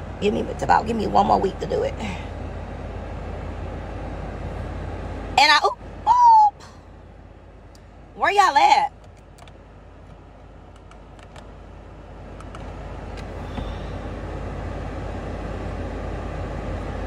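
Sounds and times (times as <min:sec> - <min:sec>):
car road noise rumble: 0:00.0 - 0:17.0
rushing road hiss: 0:12.8 - 0:16.8.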